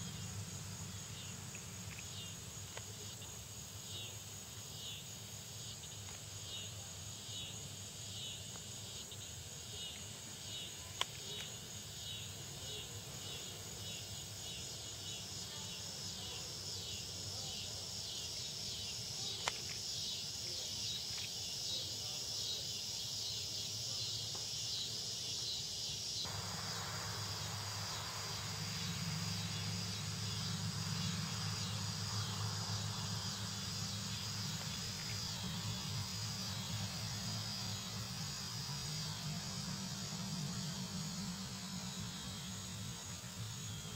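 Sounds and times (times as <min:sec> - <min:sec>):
insects chirping: 0:00.0 - 0:43.9
high buzz: 0:26.3 - 0:43.9
low hum: 0:26.3 - 0:43.9.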